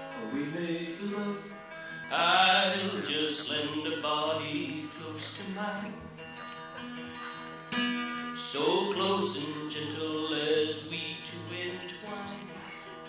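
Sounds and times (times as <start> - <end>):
man singing: 0.0 - 6.1, 8.4 - 12.6
acoustic guitar: 0.0 - 13.0.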